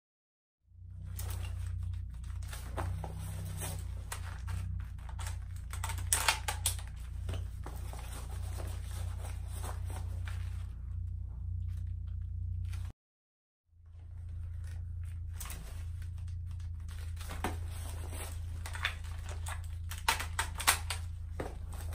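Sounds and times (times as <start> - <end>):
steady low hum: 0.7 - 12.9, 13.7 - 21.9
rifle handling clicks and clacks: 5.1 - 7.0, 18.7 - 21.1.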